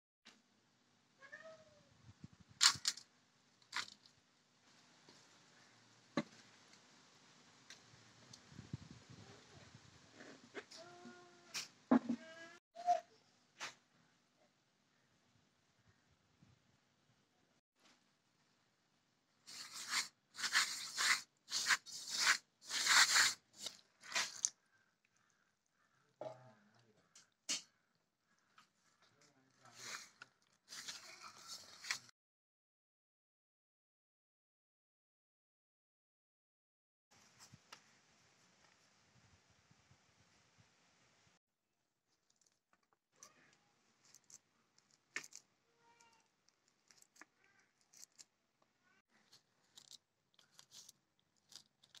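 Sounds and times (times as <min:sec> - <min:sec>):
cat meowing: 0:01.2 - 0:01.8
hand scraping flour in steel bowl: 0:19.5 - 0:24.5.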